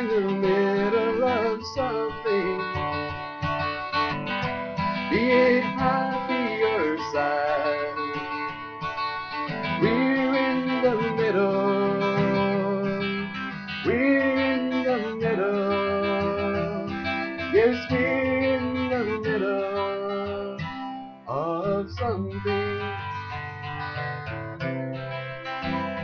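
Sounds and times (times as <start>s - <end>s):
man singing wordless phrases: 0.0s - 2.7s, 5.1s - 8.3s, 9.8s - 20.6s, 21.3s - 23.1s
strummed acoustic guitar: 0.0s - 26.0s.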